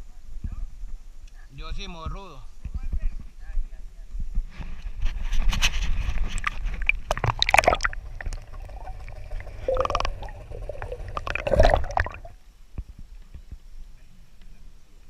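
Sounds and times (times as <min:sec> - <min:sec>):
water splashing and gurgling: 0:06.1 - 0:12.4.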